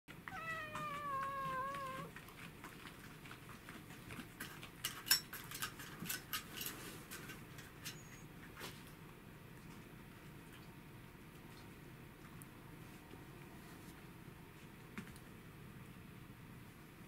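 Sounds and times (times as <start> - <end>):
cat meowing: 0.2 - 2.1.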